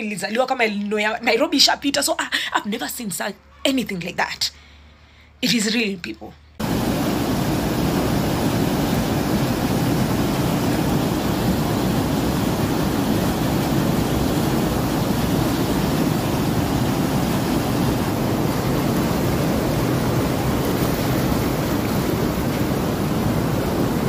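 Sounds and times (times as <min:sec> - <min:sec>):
floodwater rushing: 0:06.6 - 0:24.0.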